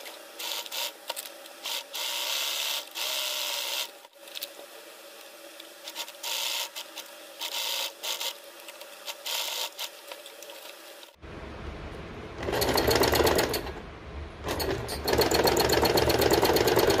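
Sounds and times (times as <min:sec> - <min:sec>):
sewing machine stitching: 0:12.4 - 0:13.8, 0:14.4 - 0:17.0.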